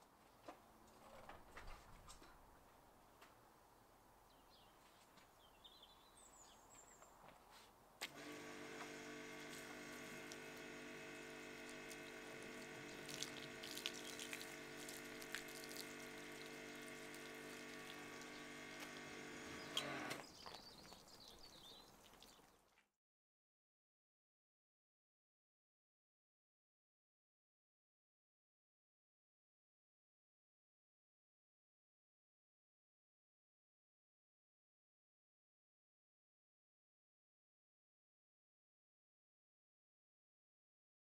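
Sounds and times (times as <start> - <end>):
water spray hissing: 8.0 - 20.2
pressure washer motor hum: 8.0 - 20.3.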